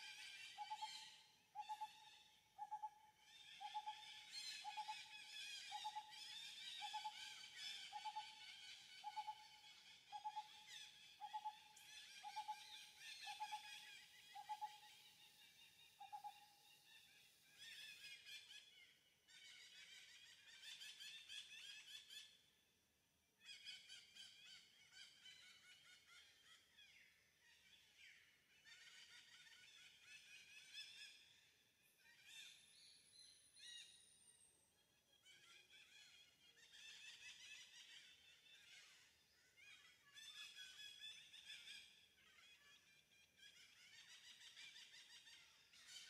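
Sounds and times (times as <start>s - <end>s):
birds chirping and twittering: 0.1s - 22.4s.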